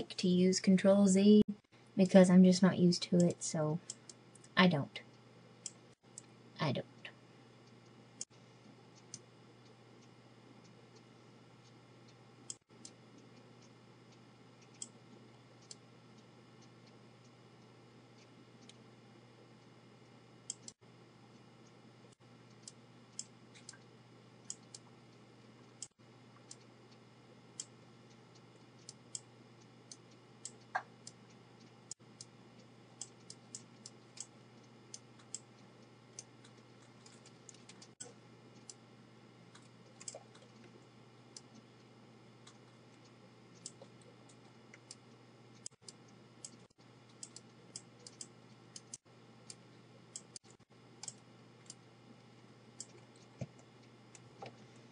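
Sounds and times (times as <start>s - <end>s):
steady low hum: 0.0s - 54.9s.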